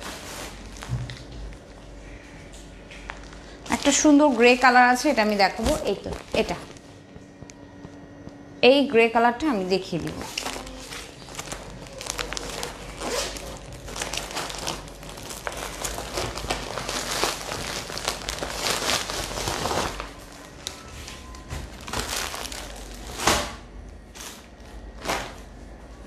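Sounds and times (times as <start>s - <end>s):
plastic package crinkling: 3.1s - 6.8s, 10.0s - 23.4s.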